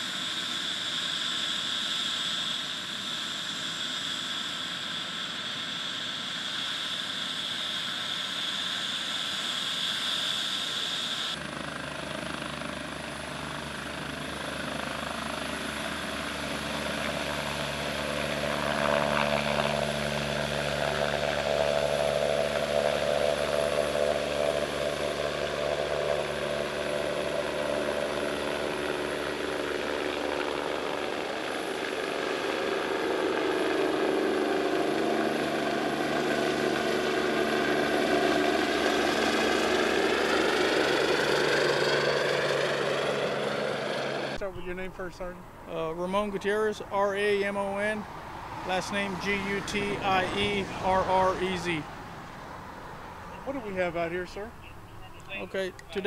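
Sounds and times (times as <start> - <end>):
helicopter rotor beat: 0.0 - 56.0
helicopter turbine whine: 0.0 - 56.0.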